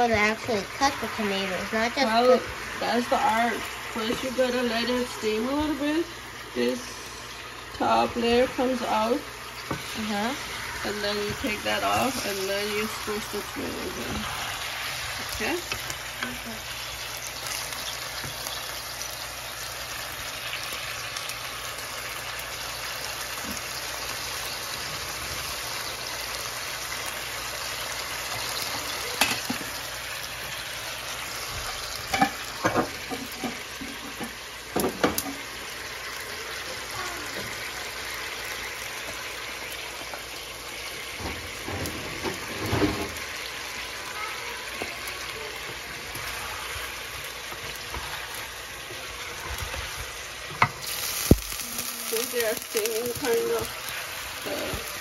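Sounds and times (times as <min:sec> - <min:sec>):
chicken sizzling in a frying pan: 0:00.0 - 0:55.0
wooden spatula scraping a pan: 0:41.4 - 0:43.3.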